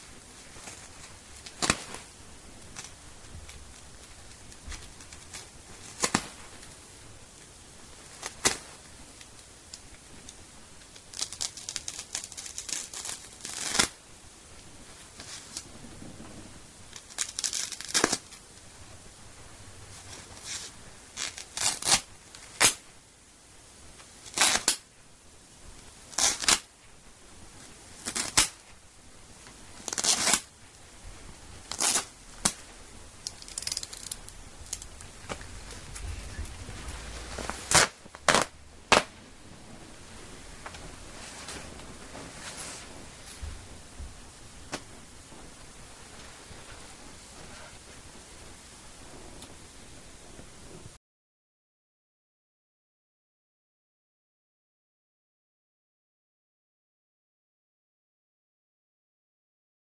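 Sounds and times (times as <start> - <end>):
knife ripping nylon fabric: 0.6 - 2.1, 4.5 - 6.4, 8.2 - 8.8, 11.0 - 14.0, 16.9 - 18.4, 20.1 - 22.8, 24.2 - 24.8, 26.1 - 26.7, 28.0 - 28.7, 29.8 - 30.6, 31.6 - 32.6, 33.2 - 36.0, 36.9 - 39.2.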